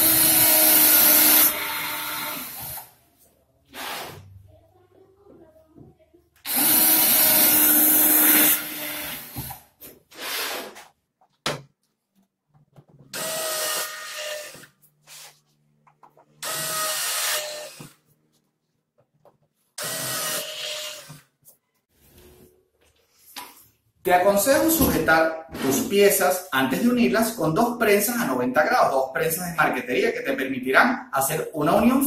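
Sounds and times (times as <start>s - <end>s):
cordless drill whining: 0.0s - 2.9s, 6.5s - 9.6s, 13.1s - 14.7s, 16.4s - 18.0s, 19.8s - 21.2s.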